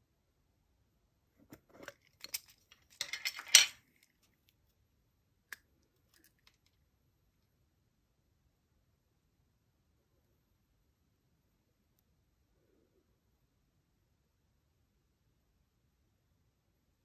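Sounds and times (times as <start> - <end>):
small parts rattling in case: 1.5 - 4.3.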